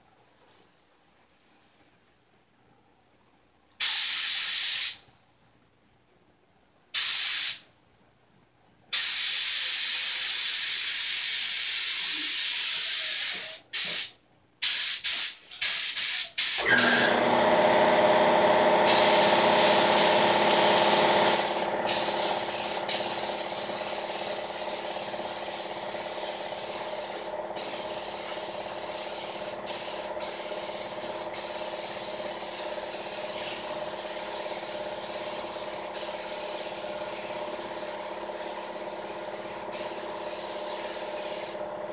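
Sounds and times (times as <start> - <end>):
spray gun hissing: 3.8 - 5.0, 7.0 - 7.6, 18.8 - 41.7.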